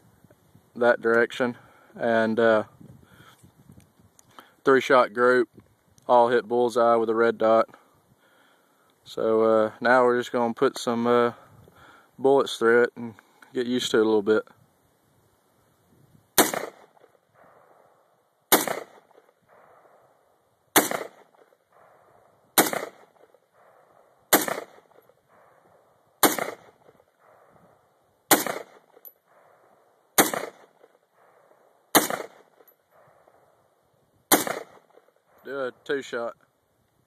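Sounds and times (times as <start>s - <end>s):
rifle shots with echo: 16.4s - 35.4s.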